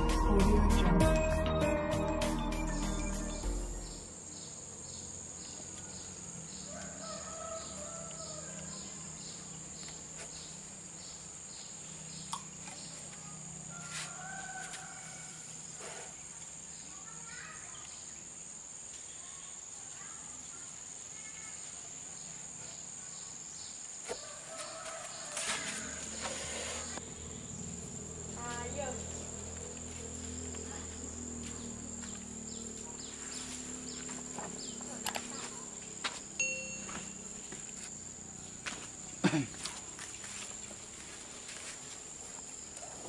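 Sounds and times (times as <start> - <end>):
intro music: 0.0 - 4.1
high insect drone: 0.0 - 43.0
pulsing insect chirp: 0.0 - 43.0.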